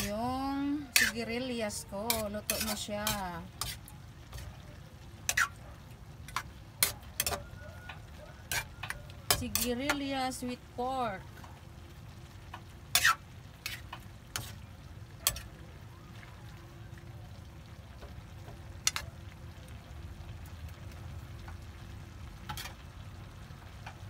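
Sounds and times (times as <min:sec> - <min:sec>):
metal ladle clinking and scraping wok: 0:00.0 - 0:04.6, 0:05.2 - 0:05.6, 0:06.2 - 0:10.0, 0:12.9 - 0:14.6, 0:15.2 - 0:15.5, 0:18.8 - 0:19.0.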